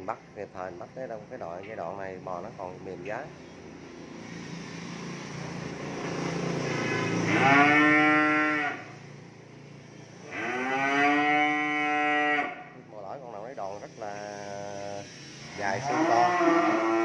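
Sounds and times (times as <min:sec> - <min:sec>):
cattle mooing: 0:06.8 - 0:09.0, 0:10.3 - 0:12.7, 0:15.6 - 0:17.0.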